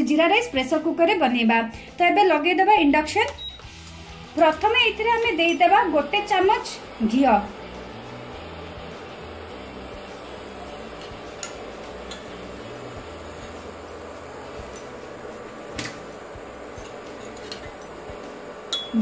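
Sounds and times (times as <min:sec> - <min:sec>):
cooling fan whirring: 0:03.6 - 0:19.0
spoon clicking against pot: 0:11.0 - 0:12.4, 0:18.7 - 0:19.0.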